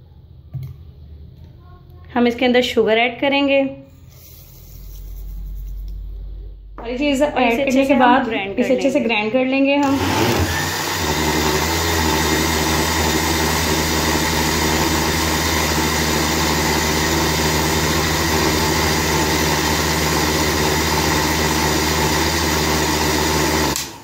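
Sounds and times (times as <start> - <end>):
blender running: 9.8 - 24.0.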